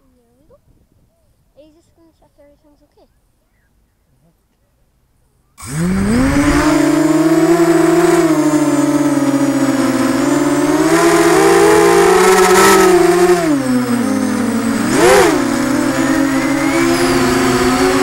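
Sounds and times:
quadcopter propellers whining: 0:05.6 - 0:18.0.

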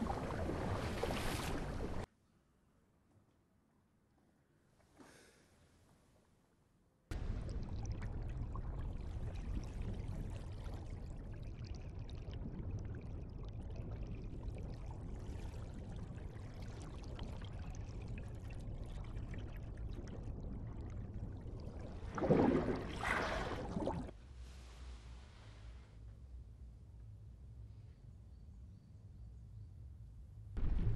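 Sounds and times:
muffled underwater water rush: 0:00.0 - 0:02.1, 0:07.1 - 0:25.9, 0:30.6 - 0:30.9
air bubbles bubbling: 0:07.1 - 0:24.2.

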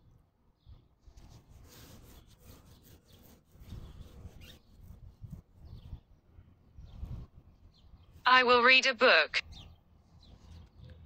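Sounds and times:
faint rubbing and scraping: 0:01.0 - 0:07.4.

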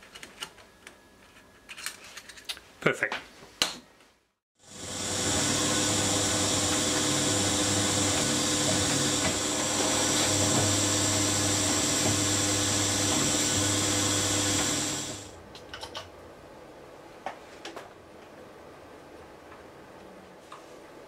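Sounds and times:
pillar drill drilling into metal: 0:04.7 - 0:15.3.

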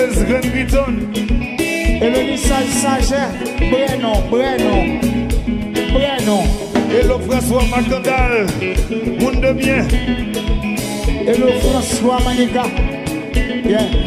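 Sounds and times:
live dance band playing: 0:00.0 - 0:14.0
man singing: 0:00.0 - 0:14.0.

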